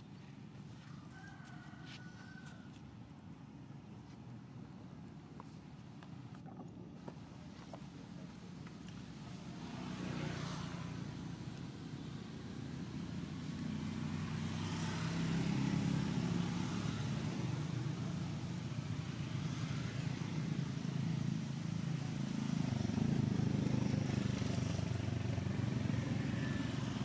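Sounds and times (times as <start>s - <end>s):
passing vehicle engines: 7.2s - 27.0s.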